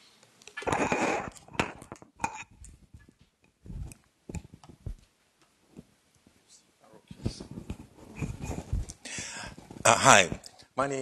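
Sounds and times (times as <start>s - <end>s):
microphone rustling: 0.6s - 6.5s, 7.1s - 10.5s
microphone knocks and thumps: 0.7s - 5.0s, 7.2s - 10.4s.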